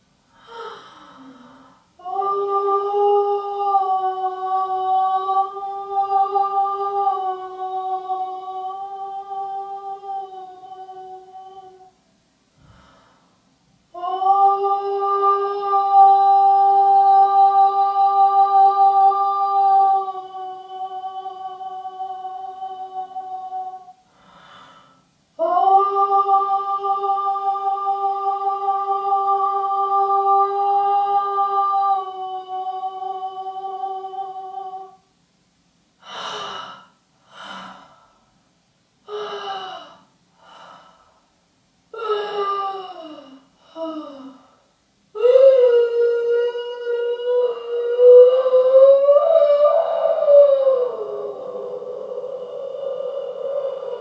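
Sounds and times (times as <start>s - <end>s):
woman humming a held note: 0.4s - 12.0s, 14.0s - 24.5s, 25.4s - 35.1s, 41.9s - 44.6s, 45.2s - 54.0s
short wavering vocal sounds: 36.0s - 38.0s, 45.2s - 54.0s.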